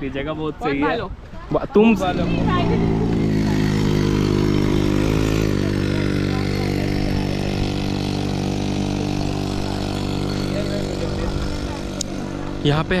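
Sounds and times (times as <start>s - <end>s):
scooter motor running: 1.8s - 13.0s.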